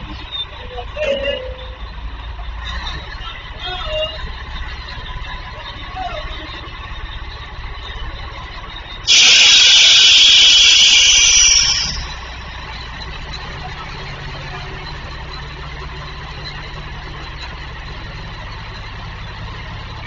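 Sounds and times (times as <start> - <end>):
diesel truck engine running: 0.0 - 20.0
air brakes hissing: 9.1 - 12.6.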